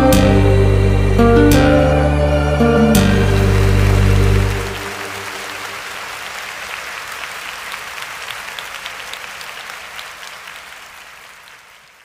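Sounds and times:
crowd applause: 2.7 - 12.0.

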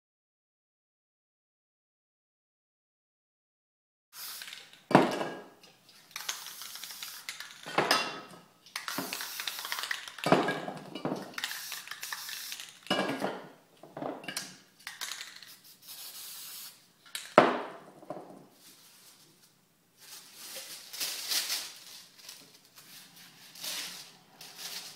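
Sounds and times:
spray-paint can hissing: 4.2 - 4.8, 6.1 - 7.6, 8.7 - 10.2, 11.4 - 12.9, 14.9 - 17.3.

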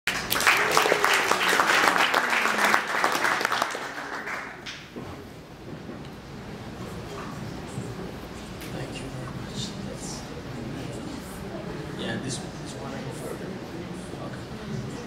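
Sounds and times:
audience applauding: 0.1 - 4.9.

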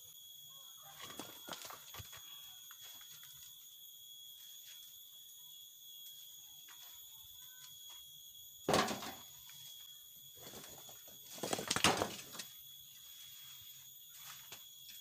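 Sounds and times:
high-pitched whine: 0.0 - 15.0
stone clunking into metal wheelbarrow: 8.7 - 9.2.

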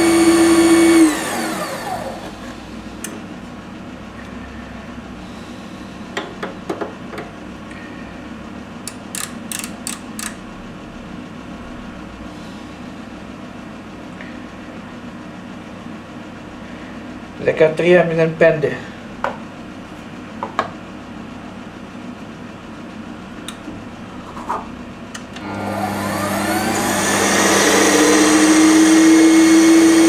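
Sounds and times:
lathe motor spinning down: 0.0 - 2.8, 25.4 - 30.0
sharp metallic clicks: 8.9 - 10.4.

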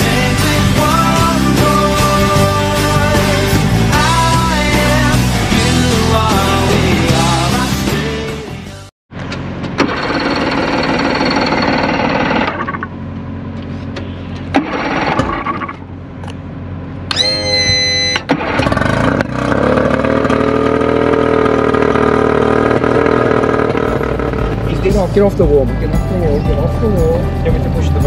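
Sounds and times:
engine running: 9.1 - 28.0
high whine: 15.1 - 28.0.

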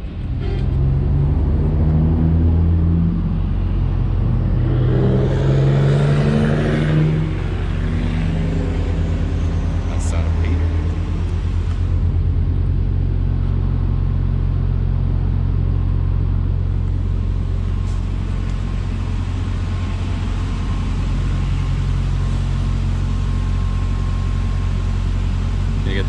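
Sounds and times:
diesel truck engine idling: 7.0 - 26.0.

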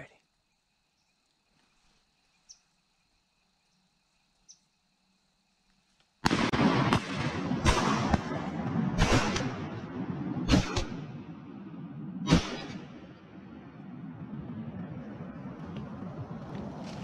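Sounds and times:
rustling of grass and clothing: 1.2 - 4.5, 15.7 - 17.0
shotgun shots: 6.2 - 11.6, 12.2 - 13.2.

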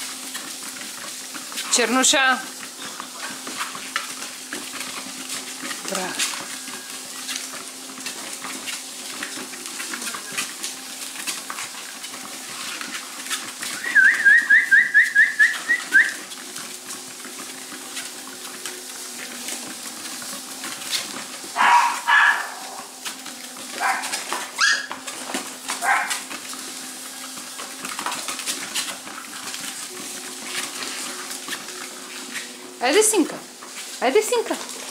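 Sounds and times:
puppies scuffling and licking: 0.0 - 34.9
puppy high squeaks: 23.8 - 24.9
puppy whines and yelps: 24.6 - 24.9.

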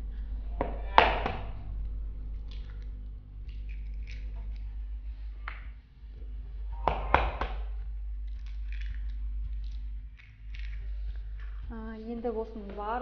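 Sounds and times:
low steady hum: 0.0 - 13.0
eggshell clicks: 0.6 - 4.7, 6.8 - 11.7
egg tapping on bowl rim: 6.8 - 11.6.

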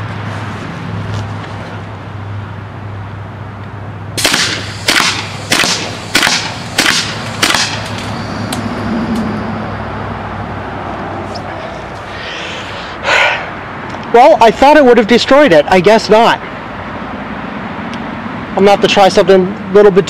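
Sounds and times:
paintball gun shots: 4.2 - 8.0.

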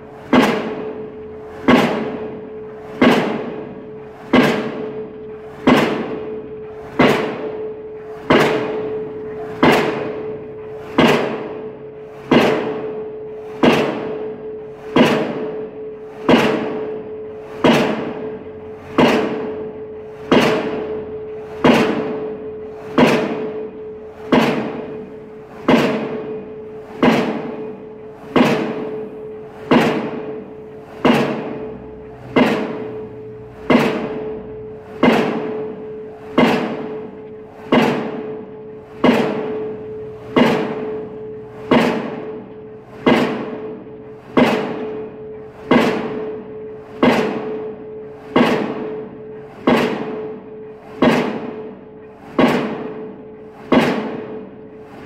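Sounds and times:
pile hammer metallic bangs: 0.0 - 55.0.

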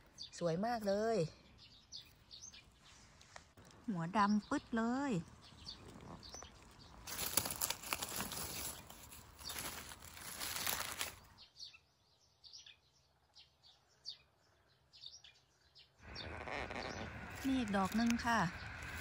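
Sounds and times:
small bird chirping: 0.0 - 3.4, 4.3 - 19.0
leaves and undergrowth rustling: 5.4 - 11.4, 16.0 - 19.0.

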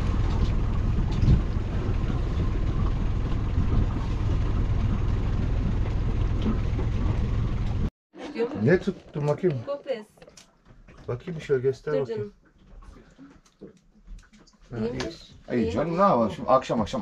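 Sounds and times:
motorboat engine humming: 0.0 - 7.9.

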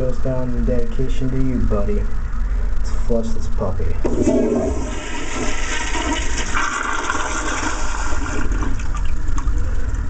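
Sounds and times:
toilet flushing: 4.0 - 9.6.

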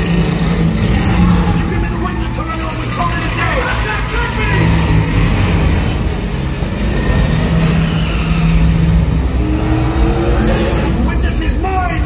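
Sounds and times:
car engines running hard: 0.0 - 12.0
deep rumble: 0.0 - 12.0.

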